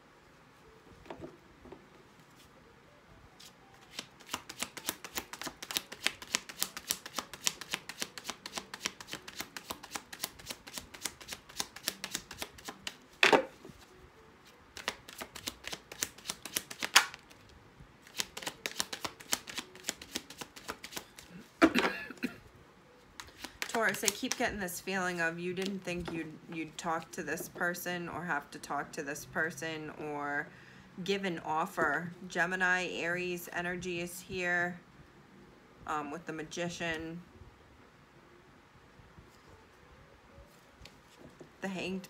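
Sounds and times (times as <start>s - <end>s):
cards being shuffled: 3.4s - 21.6s, 23.2s - 24.7s, 25.5s - 26.8s, 40.4s - 41.5s.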